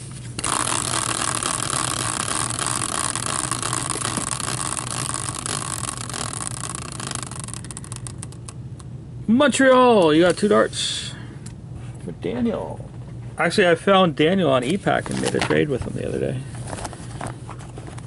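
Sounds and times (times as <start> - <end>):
prize wheel whirring: 0.4 - 8.6
wheel ticking: 0.4 - 8.6.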